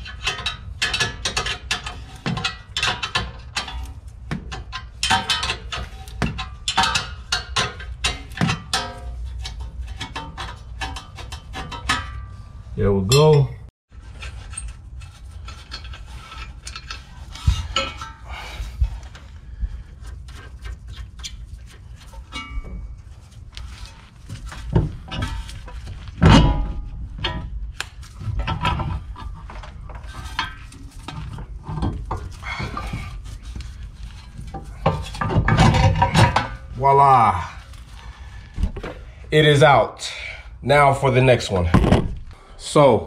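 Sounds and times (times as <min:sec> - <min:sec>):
metal clanks and scrapes: 0:00.0 - 0:40.4.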